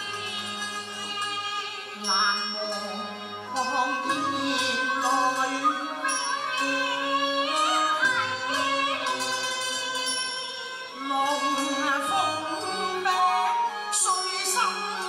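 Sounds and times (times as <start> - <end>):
live instrumental ensemble: 0.0 - 15.0
women singing opera duet: 1.9 - 9.4, 11.0 - 15.0.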